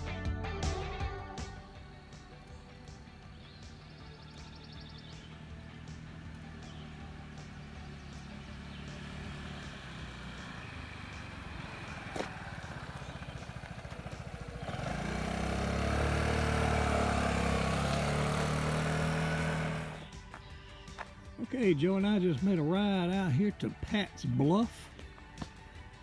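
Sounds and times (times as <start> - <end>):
distant scooter engine running: 1.4 - 21.1
scooter pulling away: 1.5 - 20.4.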